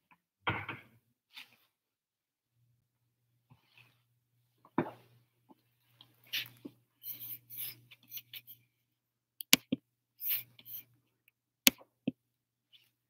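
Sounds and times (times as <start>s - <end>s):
rustling and scraping: 1.3s - 1.8s, 4.7s - 8.6s.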